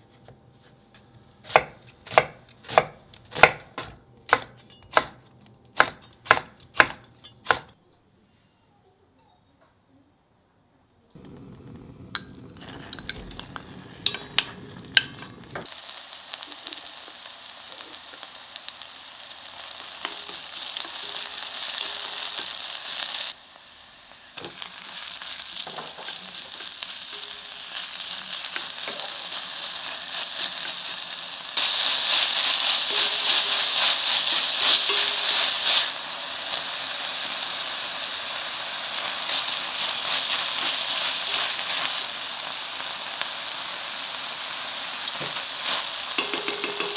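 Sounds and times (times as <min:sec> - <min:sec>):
oil sizzling in a pot: 0:11.2 - 0:46.9.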